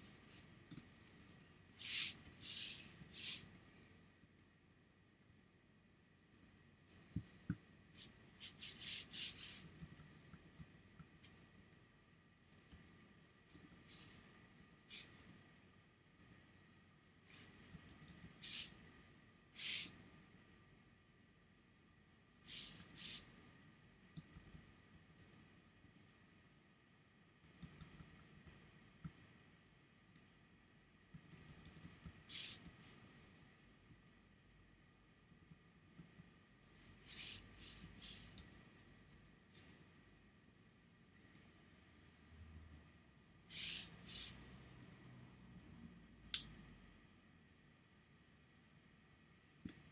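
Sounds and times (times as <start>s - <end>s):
computer mouse and keyboard clicks: 8.7s - 11.4s, 17.5s - 18.7s, 24.0s - 26.2s, 27.4s - 29.3s, 31.1s - 33.0s, 38.0s - 38.7s.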